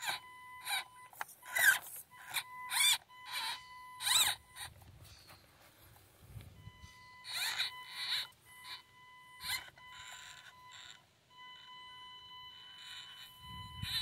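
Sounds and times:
rc car motor whine: 0.0s - 5.0s, 5.8s - 14.0s.

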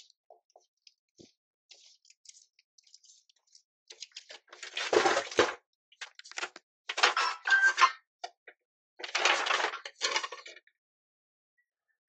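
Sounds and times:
cardboard parcel rustling and crunching: 4.0s - 5.6s.

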